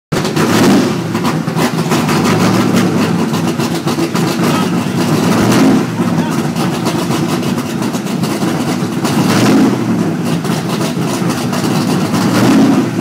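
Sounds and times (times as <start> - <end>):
race car engine idling: 0.1 - 13.0.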